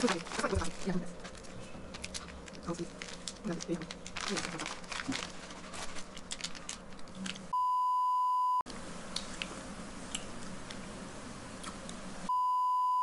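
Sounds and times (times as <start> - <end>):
plastic snack wrappers crinkling: 0.0 - 7.5
edit bleep tone: 7.6 - 8.6, 12.3 - 13.0.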